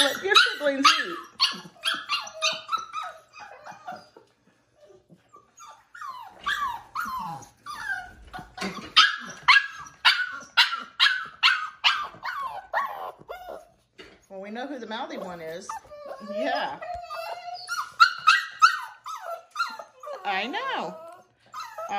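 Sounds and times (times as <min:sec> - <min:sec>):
puppy yipping and barking: 0:00.0 - 0:04.2, 0:05.4 - 0:13.7, 0:15.4 - 0:20.3.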